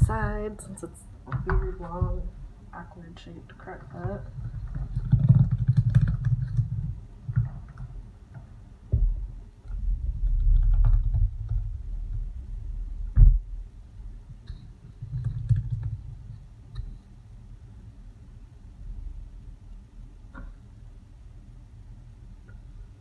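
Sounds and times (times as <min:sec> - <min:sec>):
low rumbling handling noise: 0:00.0 - 0:17.3.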